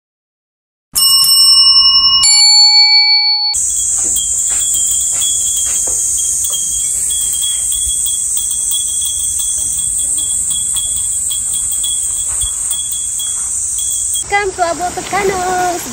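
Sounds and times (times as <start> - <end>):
glass wind bells tinkling: 1.0 - 14.2
insects droning: 3.6 - 15.9.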